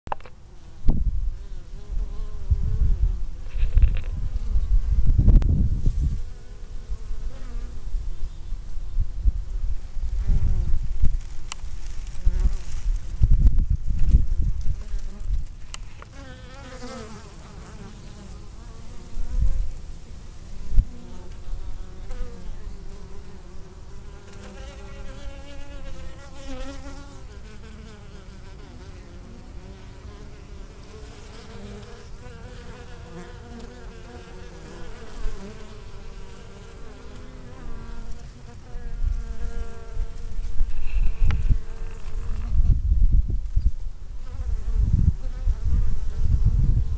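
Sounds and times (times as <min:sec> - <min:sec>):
honey bees buzzing: 0:16.0 - 0:42.6.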